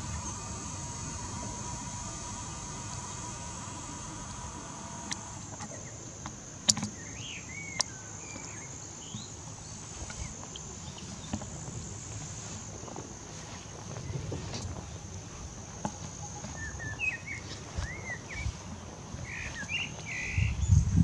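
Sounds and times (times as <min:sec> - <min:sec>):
sharp clicks: 0:00.0 - 0:05.8
insects chirring: 0:00.0 - 0:21.0.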